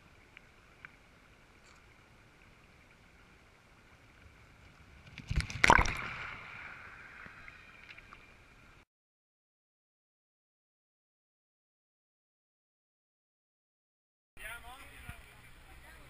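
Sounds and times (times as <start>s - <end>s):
stony river running: 0.0s - 8.8s, 14.4s - 16.0s.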